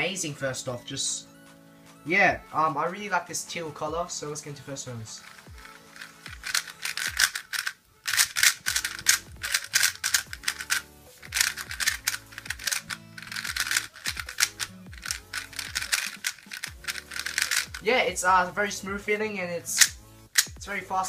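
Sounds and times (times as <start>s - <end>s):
speed cube layers clacking: 5.2s - 17.9s, 19.8s - 20.6s.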